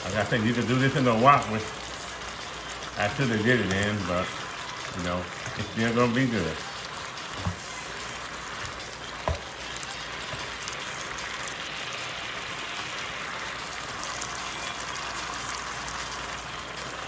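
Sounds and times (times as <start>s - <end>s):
chicken sizzling in sauce: 0.0s - 17.0s
spatula knock on pan: 9.2s - 9.5s.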